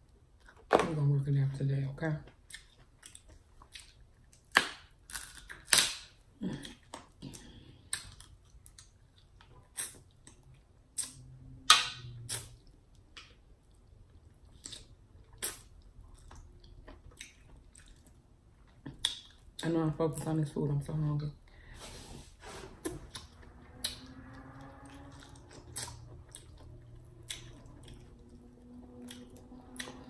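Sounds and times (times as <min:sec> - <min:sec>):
crab shell crunching in mouth: 0:02.6 - 0:07.1.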